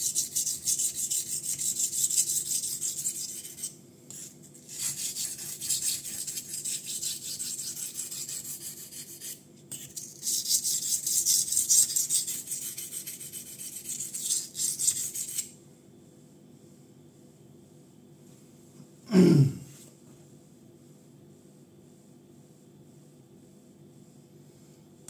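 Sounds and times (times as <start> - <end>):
knife blade scraping on whetstone: 0.0 - 15.5.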